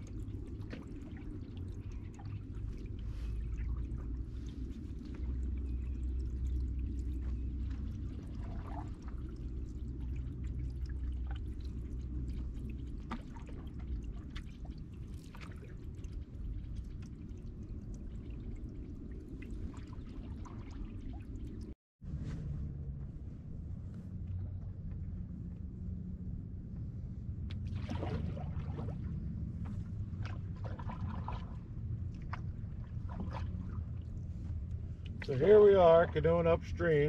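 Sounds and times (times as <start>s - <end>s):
paddle strokes in water: 0.0s - 18.0s, 27.5s - 36.5s
drips and small splashes: 0.0s - 21.8s, 26.8s - 37.0s
steady low rumble: 0.0s - 37.0s.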